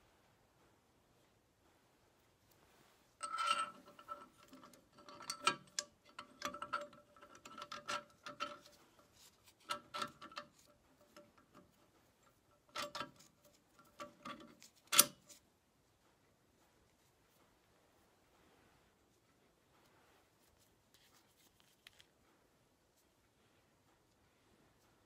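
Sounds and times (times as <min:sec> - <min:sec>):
metal parts clicking and clinking: 0:03.2 - 0:15.4.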